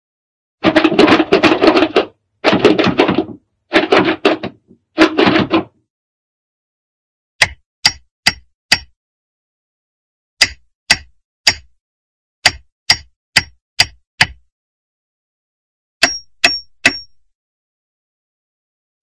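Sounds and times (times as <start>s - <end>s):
cartoon clattering knocks: 0.6s - 5.8s, 16.0s - 17.2s.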